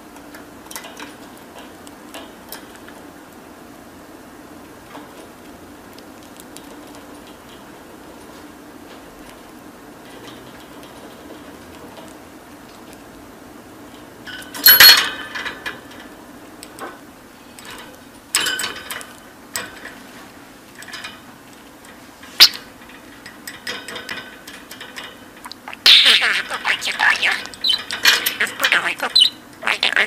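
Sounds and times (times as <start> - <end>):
faint steady hum: 0.0 - 30.0
budgerigar chirping: 25.5 - 30.0.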